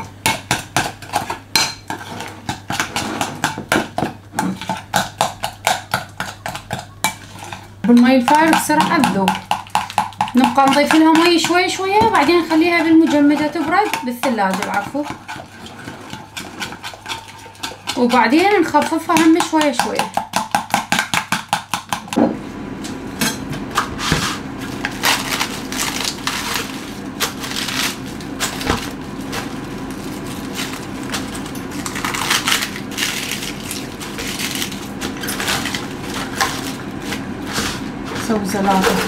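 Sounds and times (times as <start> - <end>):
lettuce leaves crunching being torn: 24.8 - 30.9, 31.8 - 36.8.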